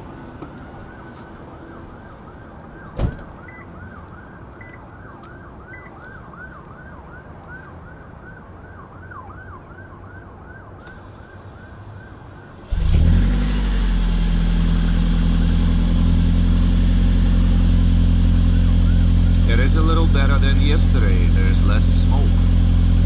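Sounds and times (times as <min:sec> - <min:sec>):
siren yelping: 0:00.4 - 0:12.9, 0:18.3 - 0:22.3
loud thump: 0:03.0 - 0:03.3.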